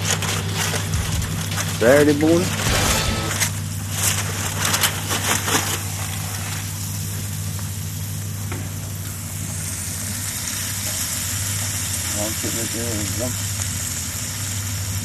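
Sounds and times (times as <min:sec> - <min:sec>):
aluminium foil crinkling: 0:00.0 - 0:07.4
low hum: 0:02.5 - 0:04.9
sizzling hiss: 0:06.0 - 0:15.0.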